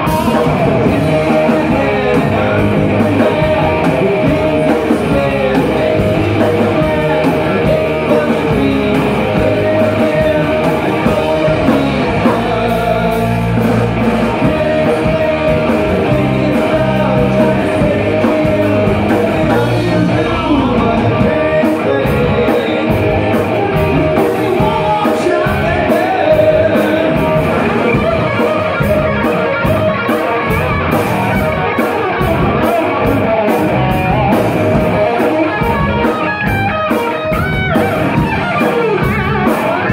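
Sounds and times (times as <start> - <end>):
man singing: 0.0 - 30.5, 31.8 - 37.4, 38.0 - 39.9
bass guitar: 0.0 - 39.9
drum kit: 0.0 - 39.9
electric guitar: 0.0 - 39.9.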